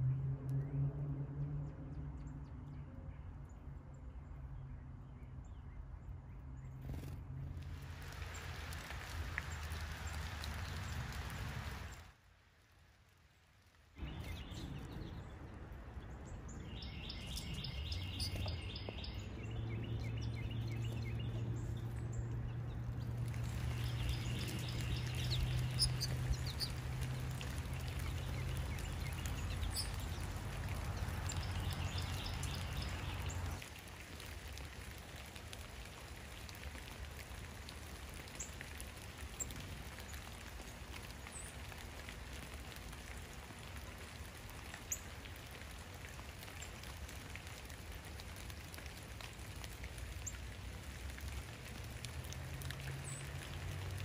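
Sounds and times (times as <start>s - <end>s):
steady rain: 7.4s - 54.0s
sharp drips: 7.6s - 12.2s, 16.4s - 54.0s.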